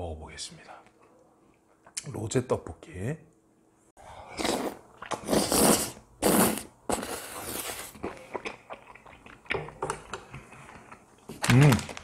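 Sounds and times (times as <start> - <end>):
slurping food: 4.2 - 9.2
wet chewing with mouth clicks: 4.4 - 11.5.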